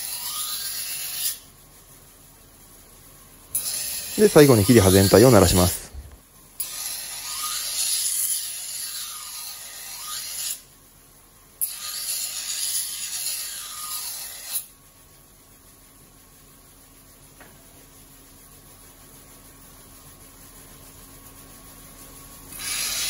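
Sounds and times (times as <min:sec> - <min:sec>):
knife grinding on whetstone: 0:00.0 - 0:01.5, 0:03.6 - 0:10.6, 0:11.6 - 0:14.7, 0:22.5 - 0:23.0.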